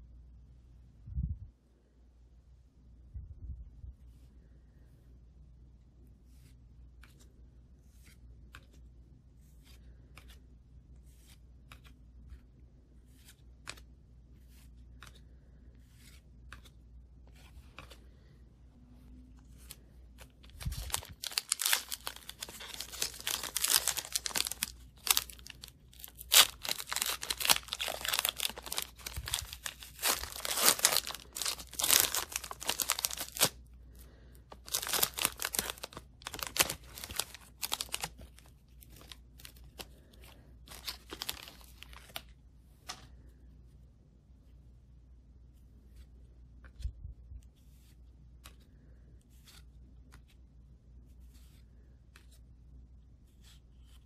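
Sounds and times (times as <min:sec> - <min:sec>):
foil wrapper tearing and crinkling: 0:20.6 - 0:33.6, 0:34.6 - 0:38.2, 0:40.7 - 0:42.0.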